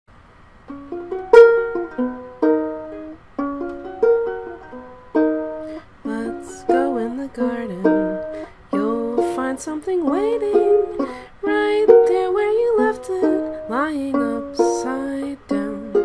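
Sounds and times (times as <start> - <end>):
ukulele plucking: 0.6 - 16.0.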